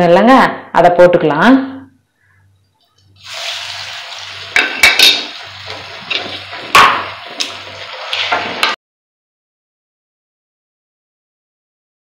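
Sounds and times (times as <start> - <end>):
batter sizzling in hot oil: 3.2 - 8.8
sharp knocks against pan: 6.7 - 7.5.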